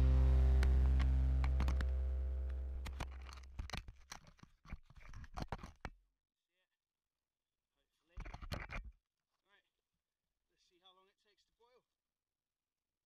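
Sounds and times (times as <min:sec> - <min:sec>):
background music: 0:00.0 - 0:03.0.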